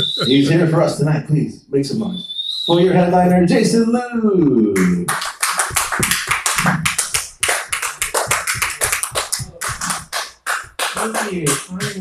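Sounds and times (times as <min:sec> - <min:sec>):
audience clapping: 0:04.8 - 0:12.0.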